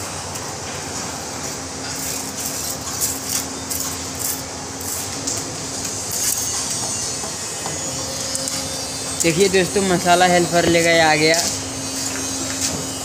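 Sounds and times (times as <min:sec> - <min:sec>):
factory machinery drone: 0:00.0 - 0:13.0.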